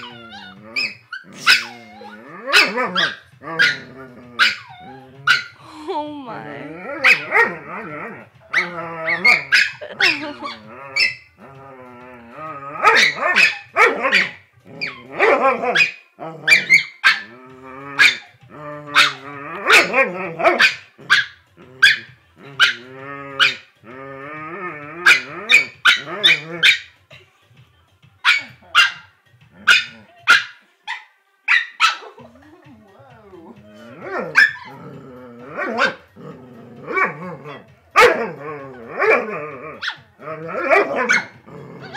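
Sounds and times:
dogs barking: 0.0s - 5.6s, 6.8s - 11.4s, 12.7s - 17.4s, 18.0s - 23.7s, 25.0s - 27.0s, 28.2s - 32.3s, 33.8s - 41.9s
dogs howling: 0.0s - 5.6s, 6.7s - 26.8s, 32.9s - 41.9s.

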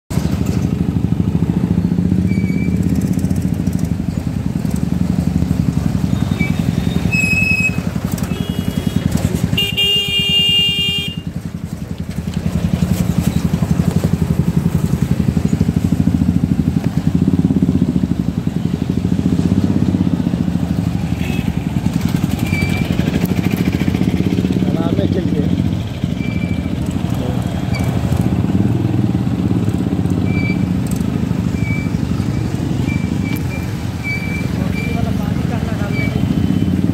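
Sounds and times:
motorcycle engine running: 0.1s - 36.9s
vehicle horns honking: 6.1s - 11.4s, 21.2s - 21.6s.

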